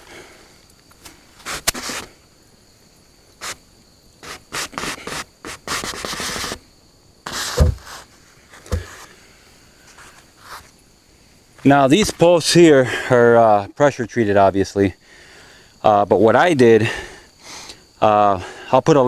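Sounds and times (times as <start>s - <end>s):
dull thumps: 7.3s - 9.1s
wooden post scraping in hole: 7.3s - 9.1s.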